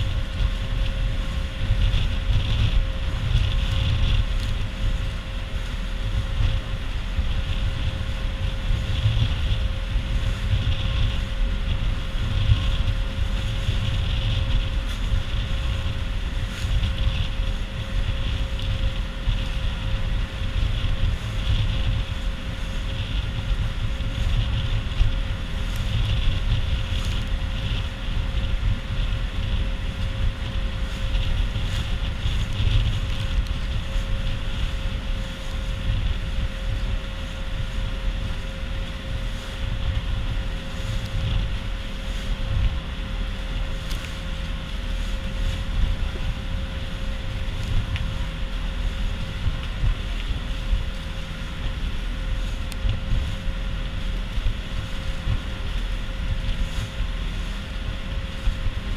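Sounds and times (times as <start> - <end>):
boat engine droning: 0.0 - 58.9
wind buffeting microphone: 0.0 - 58.9.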